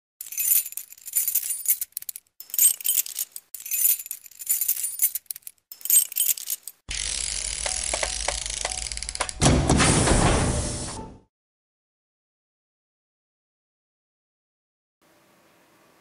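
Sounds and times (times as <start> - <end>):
bright jingling and clinking: 0.2 - 6.8
music: 7.6 - 11.3.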